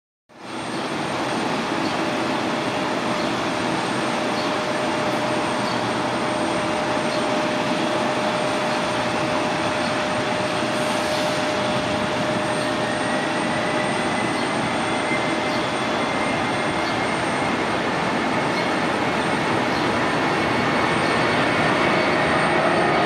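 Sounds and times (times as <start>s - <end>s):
jet engines running: 0.4s - 23.0s.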